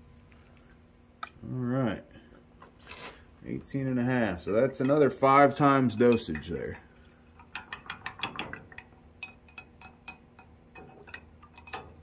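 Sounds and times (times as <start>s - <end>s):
small containers clicking and tapping: 5.9s - 12.0s.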